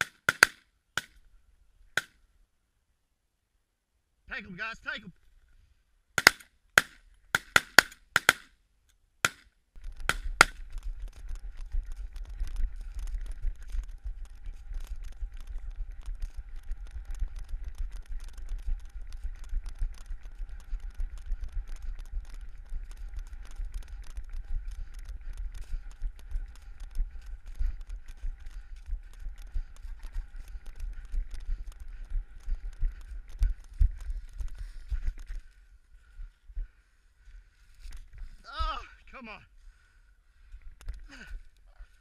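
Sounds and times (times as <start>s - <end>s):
shotgun shots: 0.0s - 0.6s, 6.2s - 8.5s
footsteps running on stubble: 9.8s - 36.8s
wind rumble: 9.8s - 38.7s.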